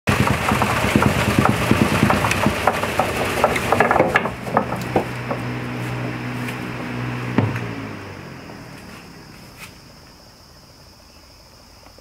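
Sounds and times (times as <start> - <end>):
wheat thresher rattling: 0.0 - 9.8
thresher drum humming: 0.1 - 9.6.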